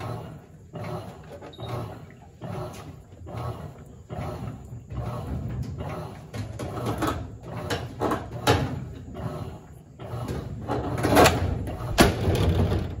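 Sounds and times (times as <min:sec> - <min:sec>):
knocks and clatter of handling: 0:10.3 - 0:13.0.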